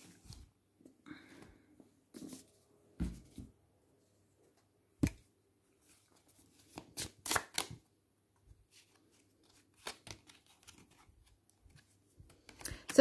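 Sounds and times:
cards snapping and slapping: 0:06.7 - 0:07.8, 0:09.7 - 0:10.9.

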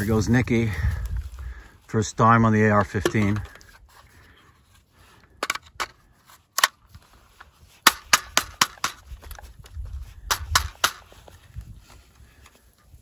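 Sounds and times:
rifle metallic clicks and clacks: 0:06.6 - 0:06.8, 0:07.8 - 0:11.0.

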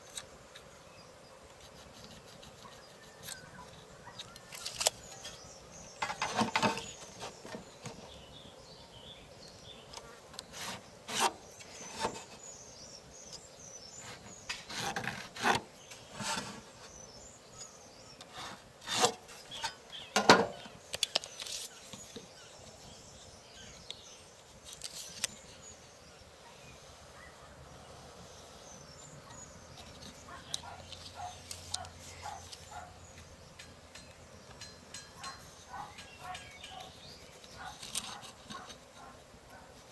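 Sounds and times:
light ticks and rustles: 0:29.7 - 0:39.6.

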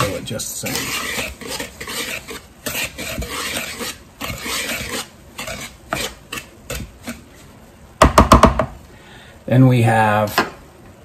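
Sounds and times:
whisk stirring flour in bowl: 0:00.0 - 0:07.5.

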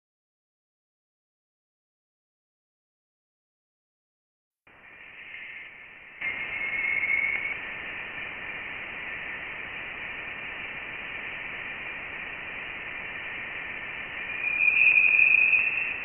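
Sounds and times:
high-pitched hiss: 0:04.7 - 0:16.0
faint tone: 0:05.1 - 0:12.3, 0:12.9 - 0:16.0.

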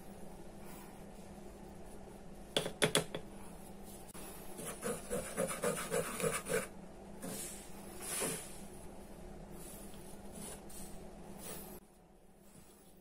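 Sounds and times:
whisk stirring flour in bowl: 0:04.6 - 0:06.7.

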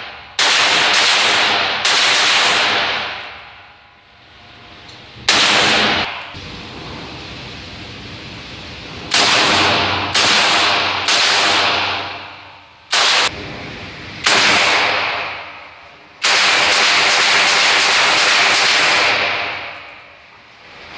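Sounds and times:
machine gun firing bursts: 0:00.0 - 0:03.2, 0:05.3 - 0:06.1, 0:09.1 - 0:12.2, 0:12.9 - 0:13.5, 0:14.2 - 0:15.4, 0:16.2 - 0:19.6.

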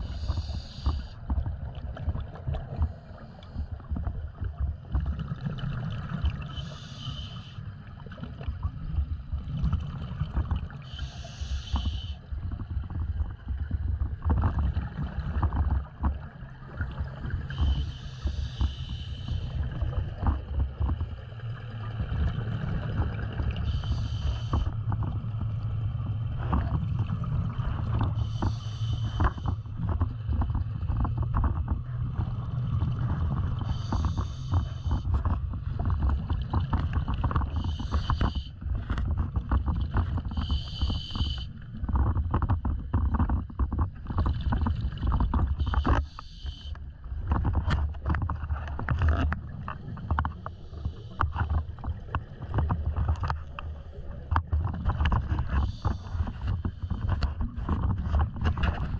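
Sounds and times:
regulator hissing inhale: 0:00.0 - 0:01.2, 0:06.5 - 0:07.7, 0:10.9 - 0:12.2, 0:17.6 - 0:19.6, 0:23.6 - 0:24.7, 0:28.2 - 0:29.4, 0:33.7 - 0:35.0, 0:37.7 - 0:38.5, 0:40.4 - 0:41.5, 0:45.8 - 0:46.8, 0:55.6 - 0:56.3
exhaled bubbles rumbling: 0:00.0 - 0:58.9.

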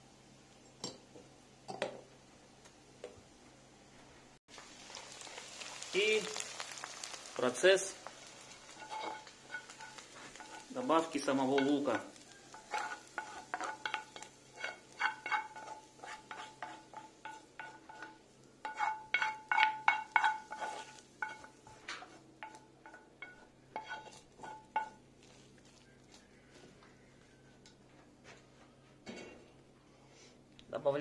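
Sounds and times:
spoon scraping a frying pan: 0:08.3 - 0:26.4.

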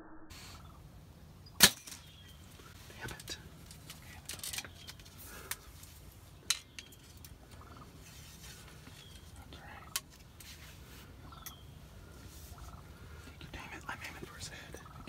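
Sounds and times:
wild turkeys chirping: 0:00.3 - 0:02.8, 0:06.3 - 0:10.0, 0:10.9 - 0:15.0.

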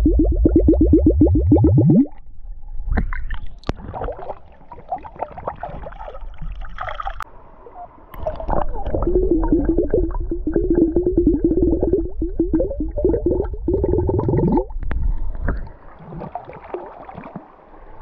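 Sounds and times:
bottle glugging underwater: 0:00.0 - 0:07.2, 0:08.2 - 0:17.4
water splashing and pouring: 0:02.9 - 0:07.2, 0:08.2 - 0:18.0.

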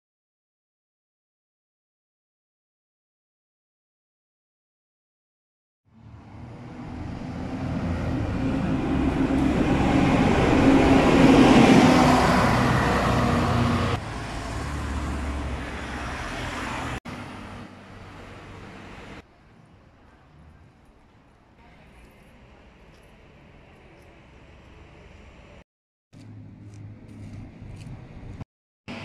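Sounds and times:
bus passing by: 0:05.9 - 0:25.6, 0:26.2 - 0:29.0
car traffic: 0:05.9 - 0:25.6, 0:26.2 - 0:29.0.

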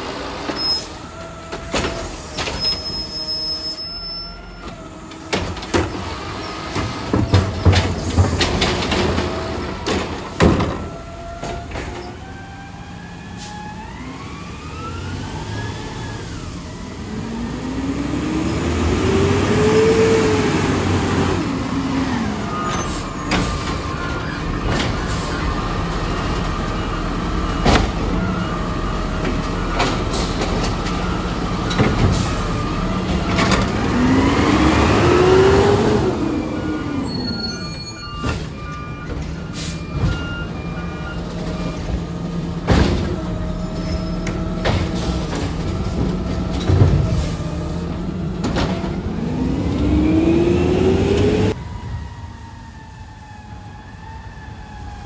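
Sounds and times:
garbage truck diesel engine revving: 0:12.9 - 0:37.5, 0:40.4 - 0:51.6.

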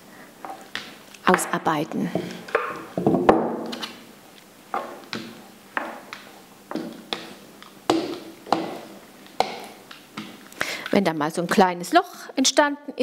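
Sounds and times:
dough roller tapping on baking stone: 0:04.8 - 0:10.4.

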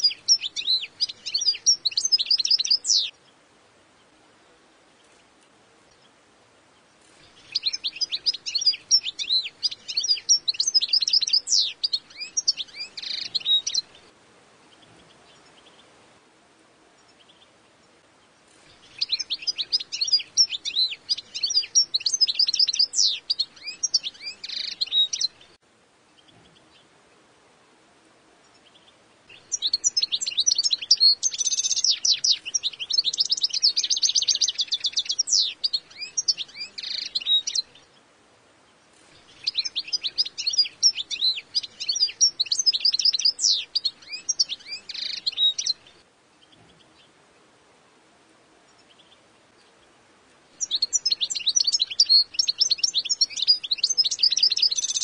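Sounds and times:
goldfinch high twittering: 0:07.4 - 0:13.9, 0:18.8 - 0:25.4, 0:29.4 - 0:37.7, 0:39.3 - 0:45.8, 0:50.6 - 0:55.0.

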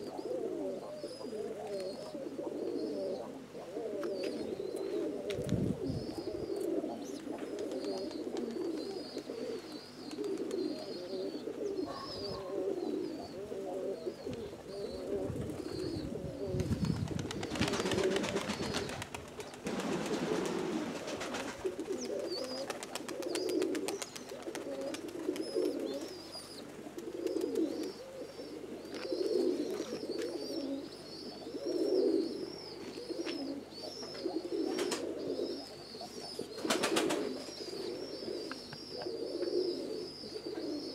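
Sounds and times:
pigeons cooing: 0:00.0 - 0:40.9.

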